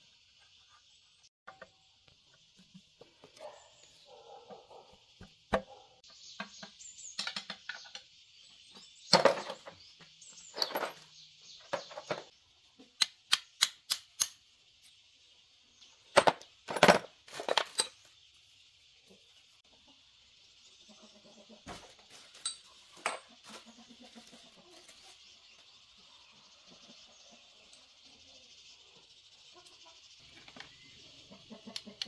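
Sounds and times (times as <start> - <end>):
metal tools clinking: 9.1 - 9.7, 10.4 - 11.1, 16.2 - 18.0, 22.3 - 23.3.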